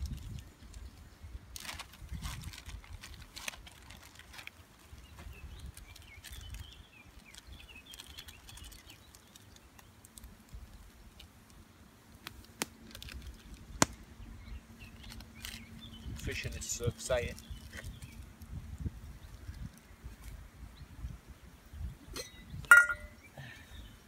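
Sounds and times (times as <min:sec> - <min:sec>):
wind on microphone: 0:00.0 - 0:03.9, 0:04.9 - 0:06.9, 0:17.3 - 0:23.2.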